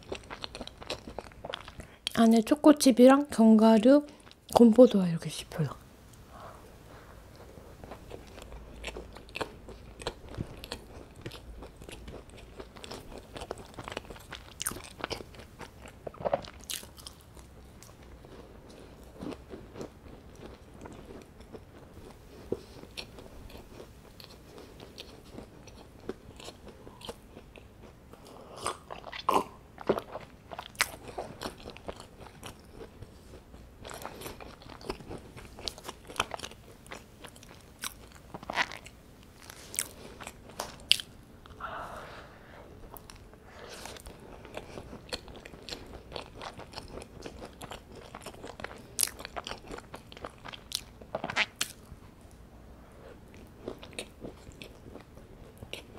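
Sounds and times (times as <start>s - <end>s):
crunchy chewing of a scone: 0.0s - 1.9s, 7.3s - 41.6s, 42.9s - 52.0s, 53.0s - 55.9s.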